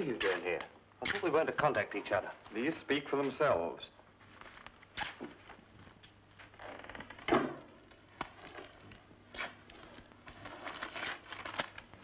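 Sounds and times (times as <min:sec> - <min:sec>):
newspaper rustling: 0:04.2 - 0:06.0, 0:10.1 - 0:12.0.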